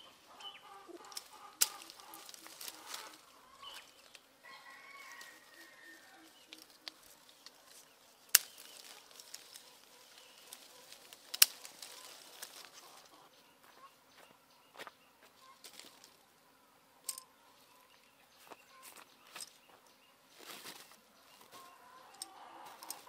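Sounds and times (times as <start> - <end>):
chickens clucking: 0.0 - 19.1, 20.4 - 23.0
faint rustle of leaves: 0.0 - 23.0
fruit snapping off branches: 1.0 - 3.2, 6.4 - 12.8.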